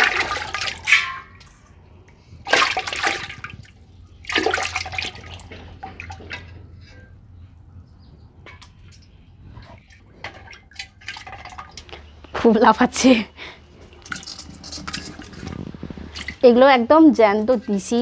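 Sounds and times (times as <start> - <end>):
fish thrashing in water: 0.0 - 1.5, 2.3 - 6.4, 9.6 - 12.2, 13.8 - 16.4
water dripping: 0.0 - 6.6
loud splashes: 2.5 - 3.6.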